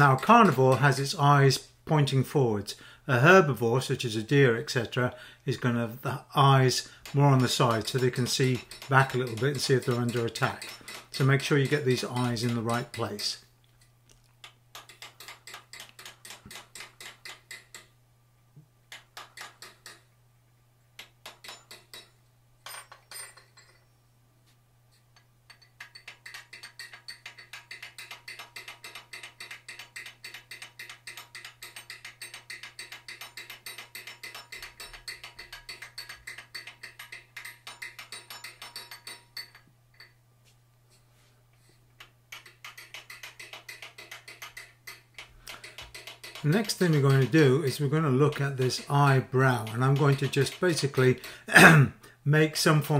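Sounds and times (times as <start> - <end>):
rapid hammer taps on steel tool: 7.0 - 13.3, 42.3 - 51.4.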